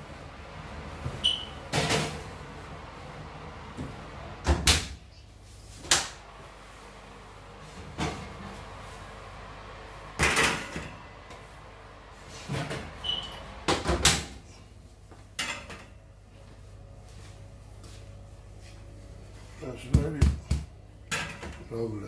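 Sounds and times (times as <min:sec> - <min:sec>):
brief high squeak: 0:01.2 - 0:01.6, 0:13.0 - 0:13.4
oven door opening and shutting: 0:04.3 - 0:05.0, 0:12.3 - 0:14.4.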